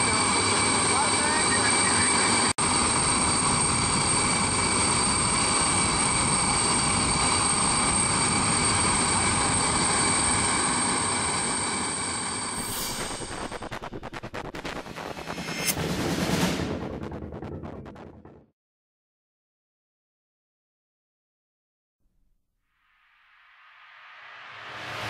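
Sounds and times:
turbine whine: 0:00.0 - 0:18.3
loud rushing roar: 0:12.4 - 0:18.4.

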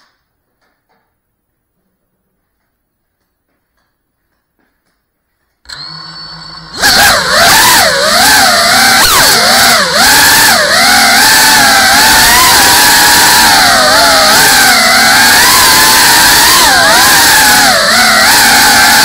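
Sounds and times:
drone motors whining: 0:05.7 - 0:19.0.

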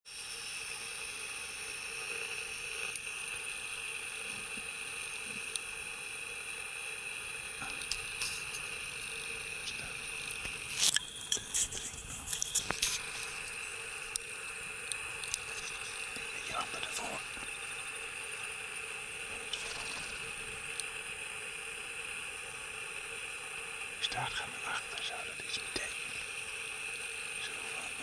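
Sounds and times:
high-pitched insect drone: 0:00.1 - 0:28.0.

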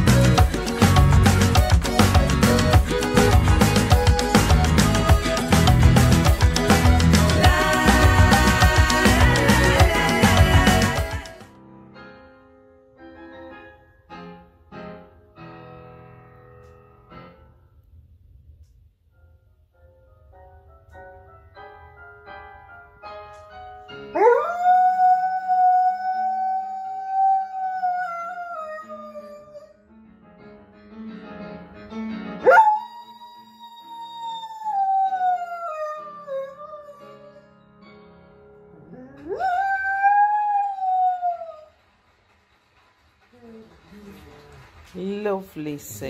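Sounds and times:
dog howling: 0:24.2 - 0:29.7, 0:32.5 - 0:37.2, 0:38.8 - 0:41.7.

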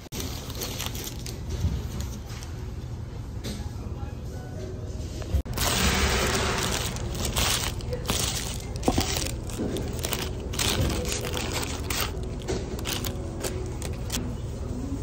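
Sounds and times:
paper wrapper crinkling: 0:00.0 - 0:02.5, 0:05.5 - 0:14.2.

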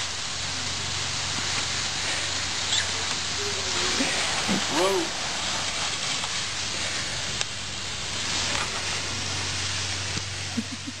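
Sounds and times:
spraying water hiss: 0:00.0 - 0:11.0.

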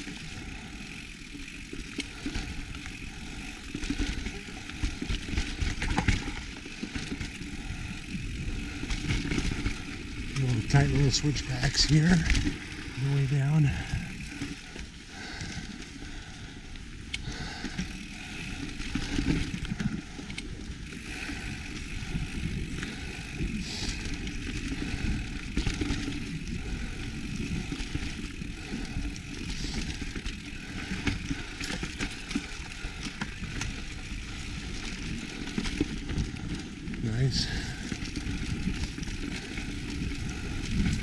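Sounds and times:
bike clicks and rattles: 0:00.0 - 0:41.0
tyres rumbling on dirt: 0:06.8 - 0:14.7.

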